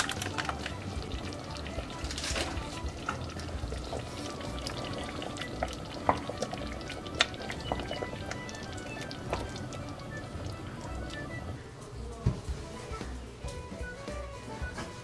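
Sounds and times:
wooden spoon stirring stew: 0.0s - 11.2s
stew bubbling in a pot: 0.0s - 11.6s
soft background music: 0.0s - 15.0s.

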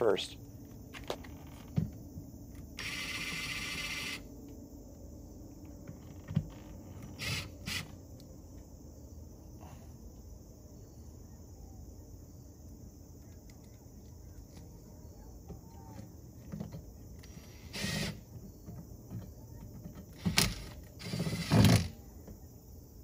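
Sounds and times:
cordless drill driving a screw: 2.8s - 4.2s, 7.2s - 7.9s, 17.4s - 18.2s, 20.2s - 21.9s.

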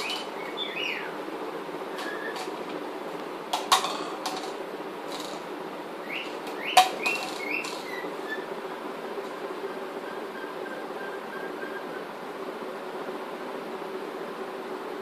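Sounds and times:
bird chirping: 0.0s - 1.2s, 6.0s - 8.5s
low background hum: 0.0s - 15.0s.

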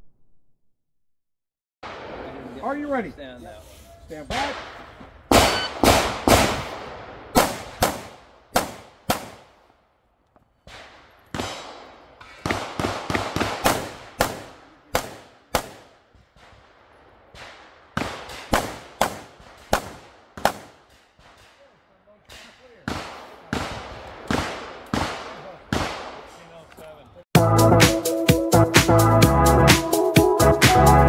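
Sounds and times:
pistol shots with echo: 4.3s - 9.5s, 10.6s - 21.6s, 22.2s - 26.4s.

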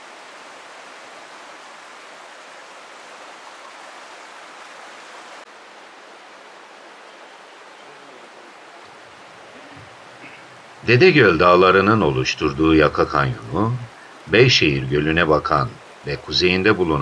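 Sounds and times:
stream rushing: 0.0s - 17.0s.

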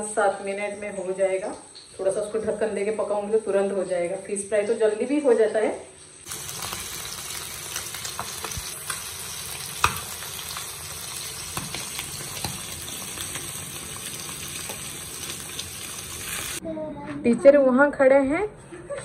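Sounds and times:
fish sizzling in hot oil: 6.0s - 16.6s
oil crackling and popping: 6.2s - 16.6s.

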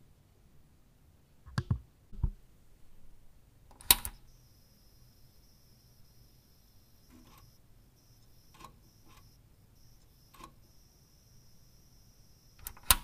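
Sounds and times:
switch clicks: 3.7s - 4.2s, 12.6s - 13.0s.

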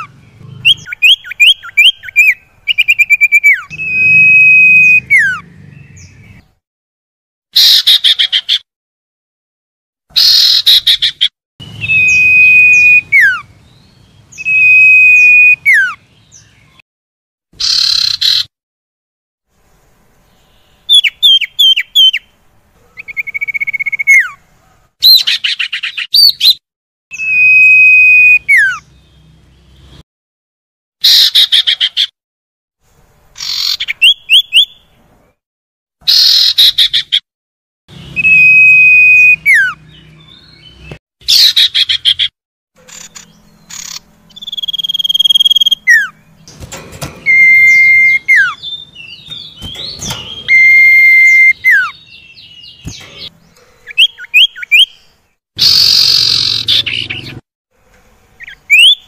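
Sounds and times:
bird whistled calls: 0.0s - 5.4s, 11.8s - 13.5s, 14.4s - 16.0s, 27.2s - 28.8s, 38.2s - 40.7s, 42.9s - 46.2s, 46.8s - 53.3s, 53.9s - 55.0s, 55.6s - 57.4s, 58.4s - 59.0s
bird chattering bursts: 42.9s - 54.9s, 55.6s - 57.3s.

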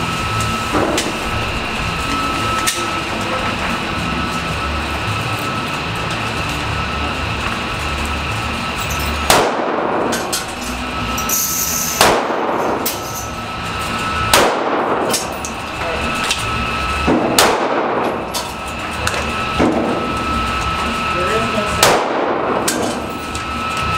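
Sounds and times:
pistol shots echoing: 9.3s - 10.1s, 12.0s - 12.6s, 14.3s - 15.1s, 17.1s - 18.1s, 21.8s - 22.7s.

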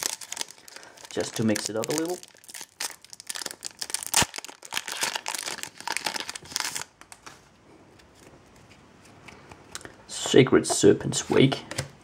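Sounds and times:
foil wrapper tearing and crinkling: 0.0s - 6.9s.

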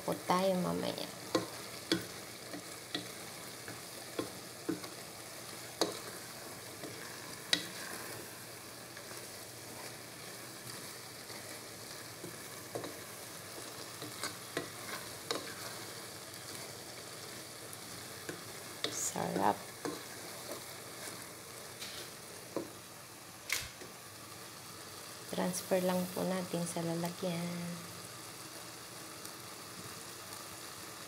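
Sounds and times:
low sizzle: 0.0s - 31.0s
spatula scraping noodles in pan: 1.2s - 11.6s, 12.2s - 16.8s, 18.0s - 22.2s.

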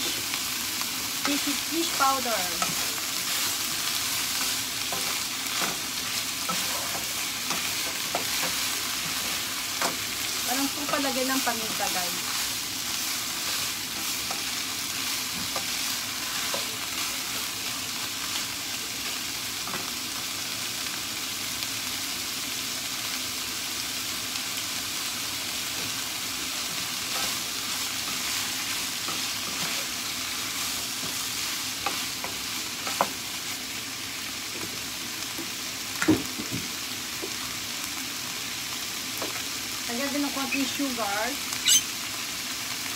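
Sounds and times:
vegetables sizzling in a frying pan: 0.0s - 42.9s
wooden spatula scraping pan: 6.4s - 10.0s.

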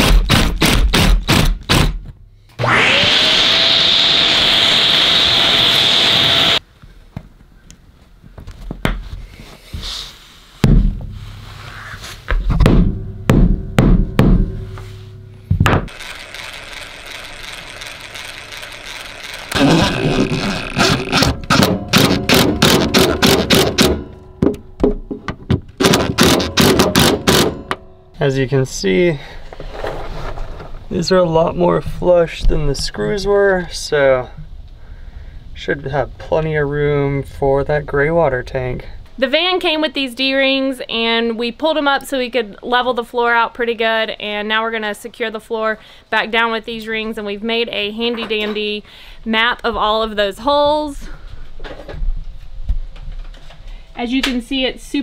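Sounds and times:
cordless drill running: 2.6s - 6.6s, 15.9s - 21.2s.

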